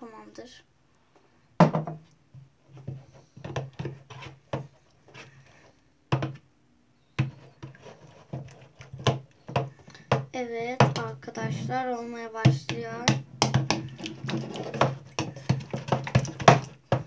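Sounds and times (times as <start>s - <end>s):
metal spoon stirring slime in bowl: 7.2s - 17.0s.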